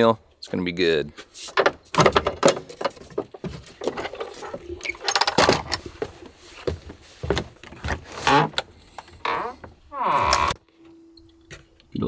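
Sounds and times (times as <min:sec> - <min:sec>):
objects knocking and rattling: 0:01.6 - 0:06.2.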